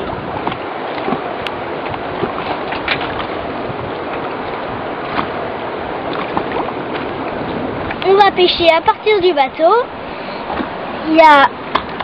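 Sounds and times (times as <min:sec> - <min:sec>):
sea water rushing: 0:00.0 - 0:12.0
wind rushing: 0:03.1 - 0:11.7.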